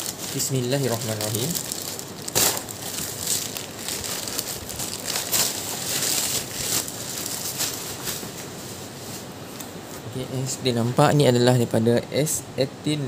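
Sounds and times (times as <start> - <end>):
plastic bag crinkling and tearing: 0.0 - 8.4.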